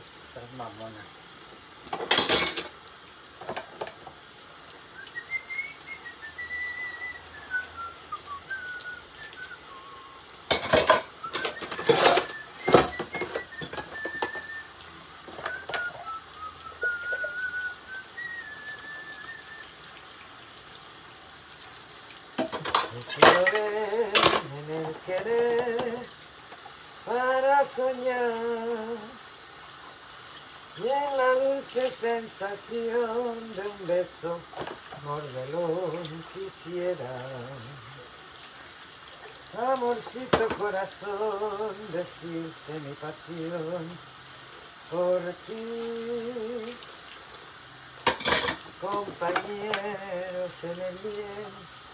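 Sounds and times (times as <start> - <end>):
dishes and cutlery clattering: 1.9 - 2.8, 10.5 - 14.4, 22.4 - 24.5, 48.0 - 48.7
person whistling a tune: 5.0 - 10.3, 11.2 - 19.9.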